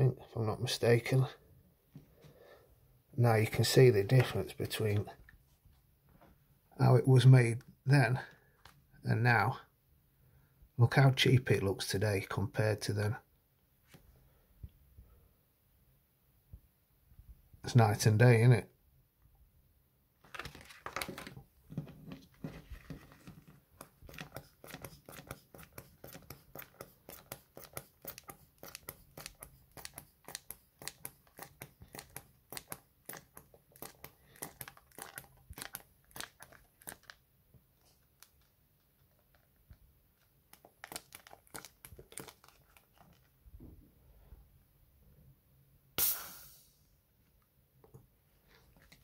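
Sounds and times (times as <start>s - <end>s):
plastic bladder crinkling: 20.2s - 43.4s, 48.4s - 49.0s.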